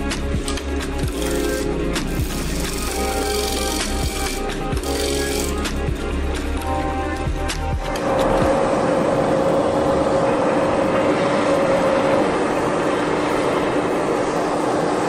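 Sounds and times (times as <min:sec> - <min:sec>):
gas blowtorch hissing: 0:01.0 - 0:05.8
wood lathe humming: 0:01.1 - 0:05.8.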